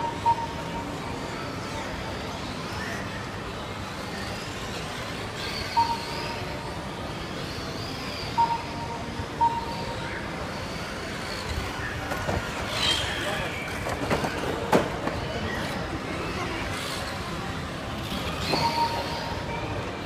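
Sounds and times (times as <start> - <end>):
short beeps: 0.0 - 0.8, 8.3 - 10.0, 18.4 - 19.6
hall hubbub: 0.0 - 20.0
toy car motors whining: 9.7 - 19.8.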